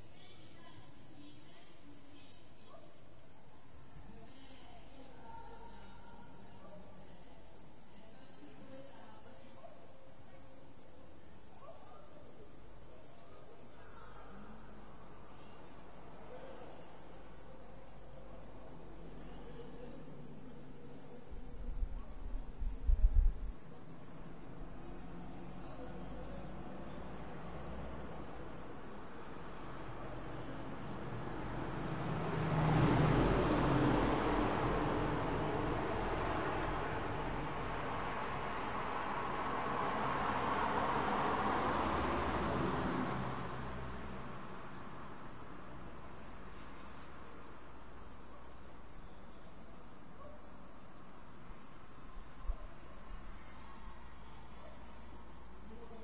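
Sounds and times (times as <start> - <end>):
crickets chirping: 0.0 - 56.0.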